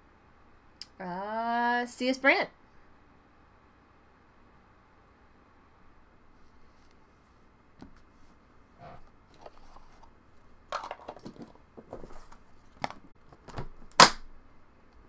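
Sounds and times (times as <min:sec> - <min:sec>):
handling knocks and rustles: 0:10.7 - 0:13.9.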